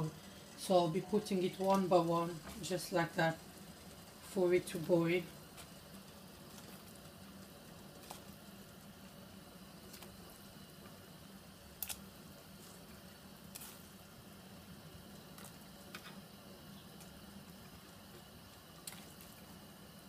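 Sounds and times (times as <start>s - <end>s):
water heating hiss: 0.0s - 20.0s.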